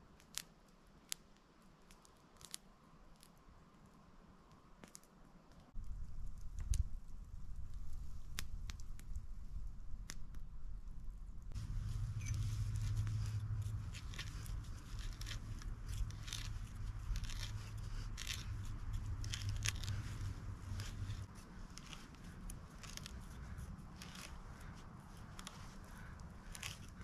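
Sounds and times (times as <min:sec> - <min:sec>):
knife carving wood: 0:01.9 - 0:02.6, 0:11.5 - 0:27.0
low hum: 0:05.8 - 0:27.0.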